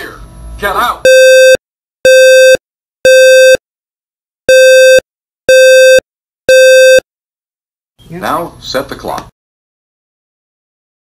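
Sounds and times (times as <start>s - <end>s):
buzzy alarm clock beeps: 1.0s - 3.6s, 4.5s - 7.0s.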